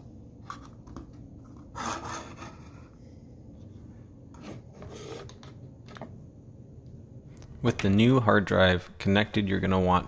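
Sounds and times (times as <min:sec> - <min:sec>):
cable handling noise: 0:00.4 - 0:01.8, 0:04.3 - 0:06.2.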